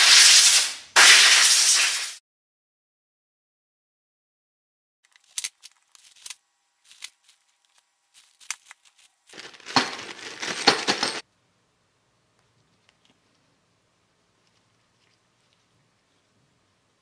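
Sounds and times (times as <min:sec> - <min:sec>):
rustling and scrunching: 0:05.1 - 0:11.2.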